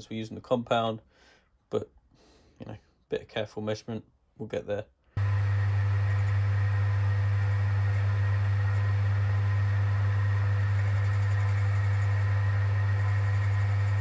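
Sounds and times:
lathe running: 5.2s - 14.0s.

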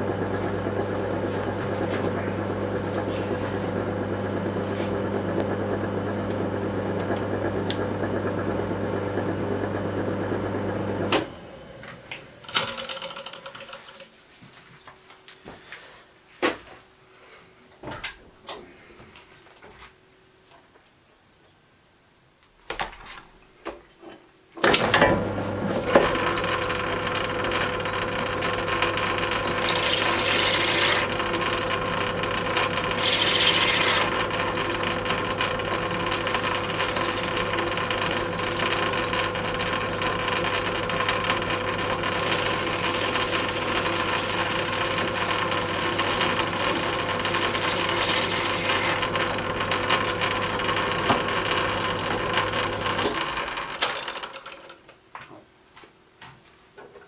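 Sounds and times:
lathe motor hum and gear whine: 0.0s - 12.8s, 24.7s - 53.8s
cutting tool scraping metal: 29.5s - 31.2s, 33.0s - 34.4s, 42.2s - 49.1s.

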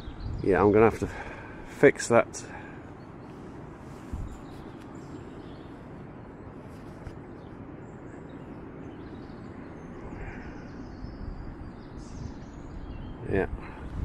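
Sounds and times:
distant weir water rushing: 0.0s - 14.0s
faint bird chirps: 2.4s - 14.0s.

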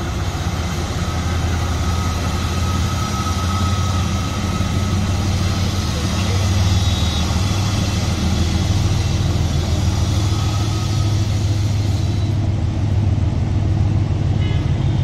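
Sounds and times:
train rumble and hum: 0.0s - 15.0s
hiss: 5.5s - 12.4s.

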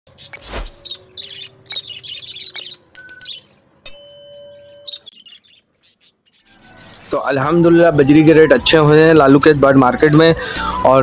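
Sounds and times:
small birds chirping: 0.1s - 8.2s
bright ringing chime: 3.0s - 5.1s.

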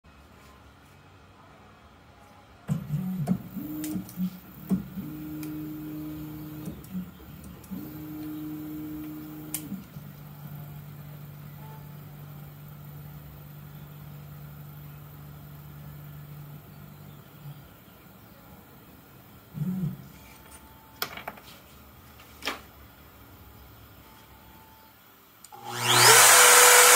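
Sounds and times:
stepper motor whine: 7.6s - 9.8s, 25.5s - 26.9s.

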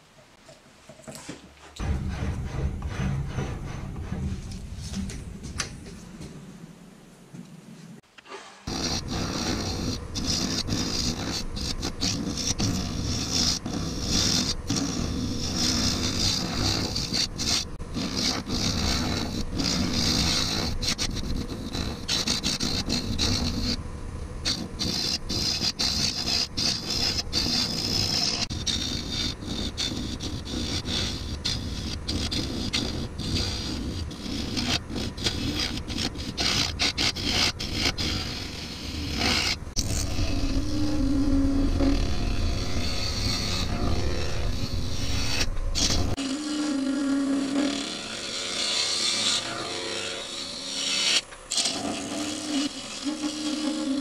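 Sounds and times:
lathe gouge scraping resin: 8.3s - 54.0s
lathe running: 8.7s - 54.0s.

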